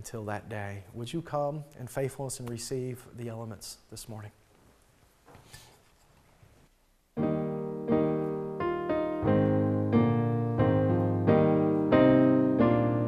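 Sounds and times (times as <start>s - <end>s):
piano playing sustained chords: 7.2s - 13.0s.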